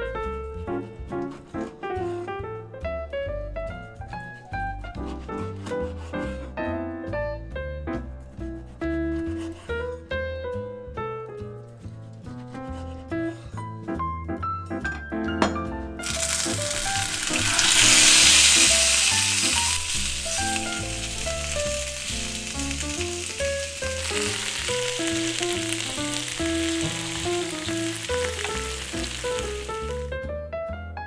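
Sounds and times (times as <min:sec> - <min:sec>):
background music: 0:00.0 - 0:31.0
food sizzling on hot plate: 0:16.0 - 0:30.1.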